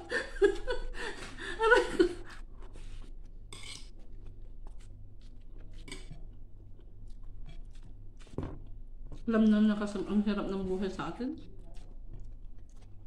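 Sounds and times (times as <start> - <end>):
steady low hum: 0.0 - 13.0
chewing: 2.3 - 9.6, 11.4 - 13.0.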